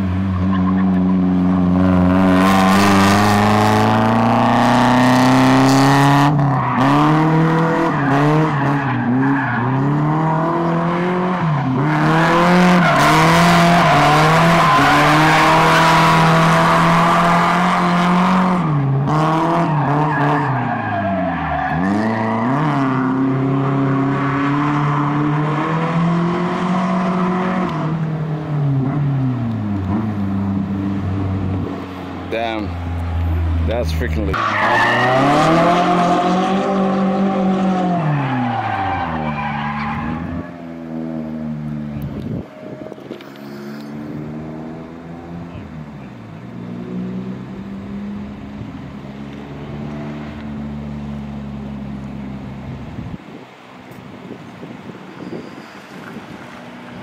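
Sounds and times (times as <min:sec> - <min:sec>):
car engine revving: 0:00.0 - 0:53.1
tyres squealing and skidding: 0:00.2 - 0:26.2, 0:31.9 - 0:40.8, 0:43.1 - 0:44.4, 0:55.1 - 0:57.0.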